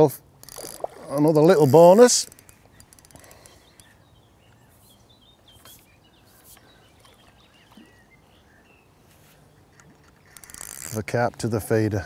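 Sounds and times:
small birds chirping: 1.8 - 10.6.

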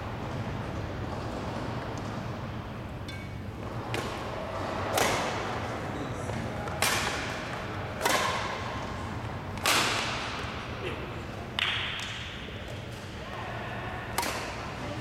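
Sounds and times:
rackets hitting shuttlecock: 3.0 - 5.7, 6.6 - 13.0, 14.1 - 14.7.

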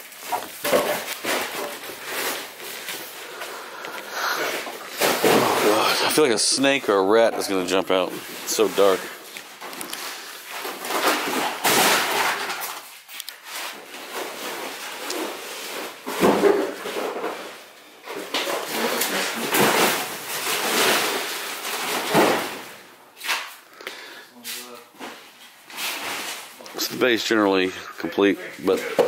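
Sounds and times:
junk being shifted: 4.6 - 6.3.

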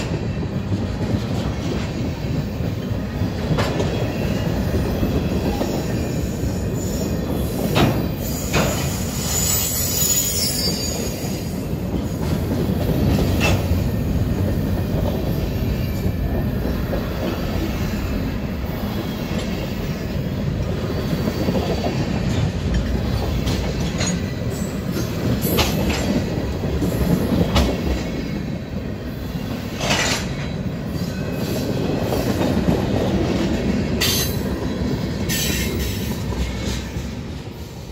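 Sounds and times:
train wheels rumbling on rail: 0.0 - 37.9
wheel squeals: 8.1 - 11.6.

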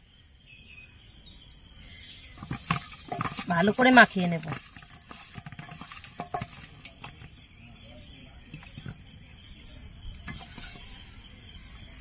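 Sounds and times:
wet hand handling fish: 2.3 - 7.4, 10.2 - 12.0.

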